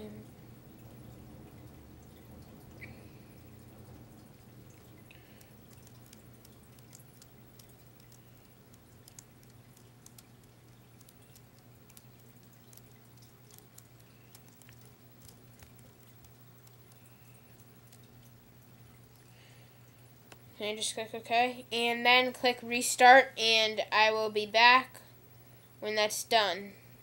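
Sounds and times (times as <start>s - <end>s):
faint low hum: 0.0s - 27.0s
faint ticks: 4.7s - 19.4s.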